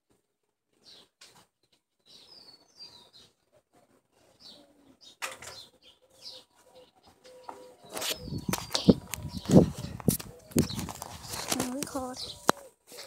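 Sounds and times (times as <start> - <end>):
high bird chirps: 4.4 - 12.5
phone handling rustling: 8.0 - 12.6.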